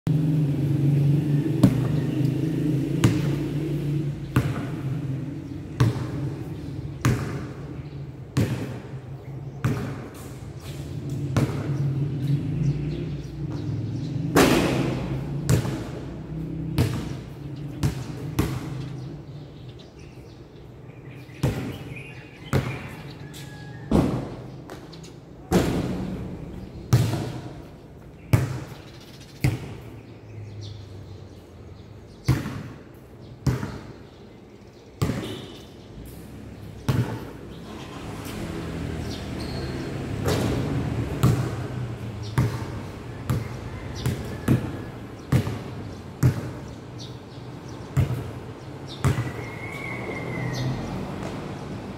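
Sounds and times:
basketball bouncing on concrete: 1.4s - 12.1s, 13.3s - 19.2s, 21.4s - 21.9s, 22.5s - 23.0s, 25.5s - 29.9s, 32.2s - 34.0s, 35.0s - 35.7s, 36.8s - 37.4s, 39.4s - 47.1s, 47.7s - 50.2s, 51.2s - 51.6s.

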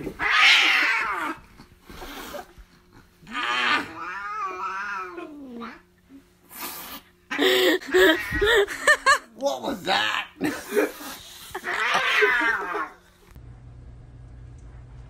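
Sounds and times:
cat yowling: 0.2s - 1.4s, 3.3s - 5.8s, 11.6s - 13.0s.

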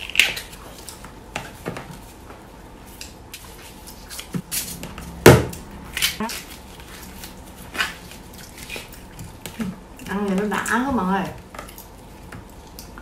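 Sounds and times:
loud knocks: 5.2s - 5.7s.

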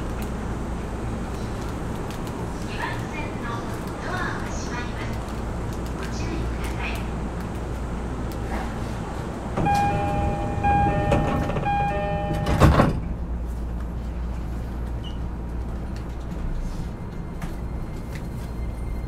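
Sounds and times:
low hum inside train car: 0.0s - 19.0s
sliding doors thudding shut: 9.5s - 13.2s
train door-closing chime: 9.6s - 13.1s.

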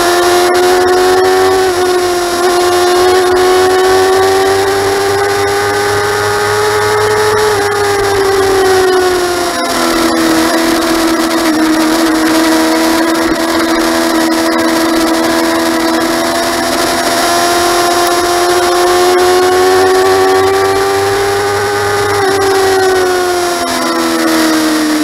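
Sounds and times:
motorcycle engine at high revs: 0.0s - 25.0s.

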